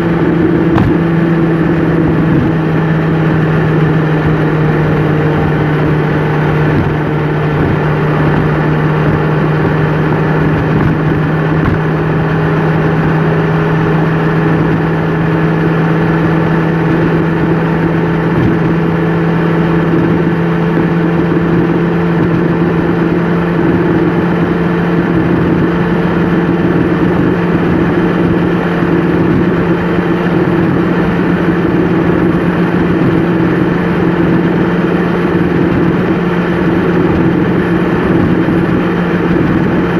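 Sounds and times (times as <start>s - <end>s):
road and tyre noise: 0.0s - 39.9s
vehicle engine hum: 0.0s - 39.9s.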